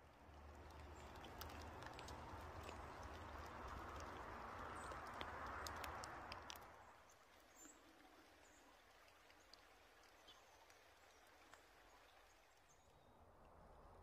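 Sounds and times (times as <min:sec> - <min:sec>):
small ticks: 0:00.4 - 0:06.7.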